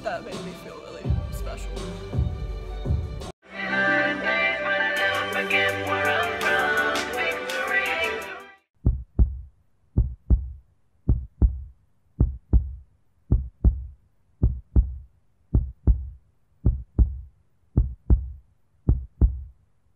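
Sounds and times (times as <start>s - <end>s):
music: 0.0s - 8.7s
heartbeat thumps: 8.8s - 19.6s.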